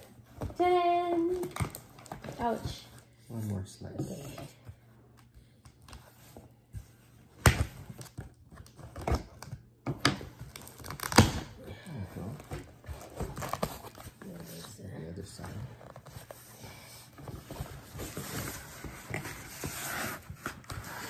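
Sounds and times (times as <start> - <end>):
packing tape and cardboard ripping: 7.5 - 11.6
cardboard rustling and scraping: 12.3 - 21.0.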